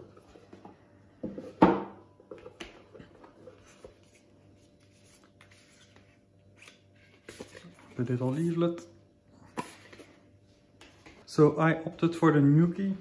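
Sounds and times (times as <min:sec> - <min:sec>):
soft paper rustling: 0:02.9 - 0:08.8.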